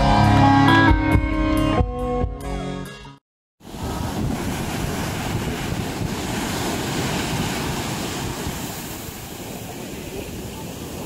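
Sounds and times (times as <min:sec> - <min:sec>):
surf washing on beach: 0:03.6 - 0:11.0
wind buffeting microphone: 0:03.7 - 0:11.0.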